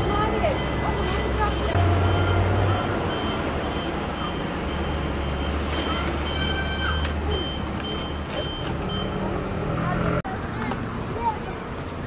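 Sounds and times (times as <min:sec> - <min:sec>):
reversing alarm beeping: 0:00.0 - 0:09.2
street noise: 0:00.0 - 0:12.0.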